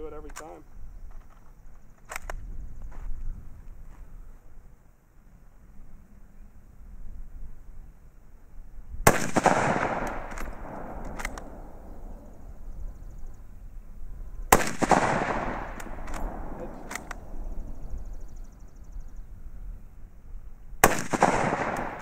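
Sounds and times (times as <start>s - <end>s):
rifle bolt clicks: 2.0s - 2.4s, 10.0s - 11.6s, 15.7s - 17.4s
rifle shot echoing: 9.0s - 12.7s, 14.5s - 18.1s, 20.8s - 22.0s.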